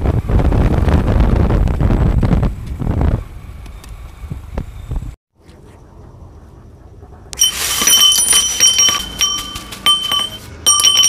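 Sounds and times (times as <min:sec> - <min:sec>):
steel tools clinking on concrete: 0:07.4 - 0:11.0.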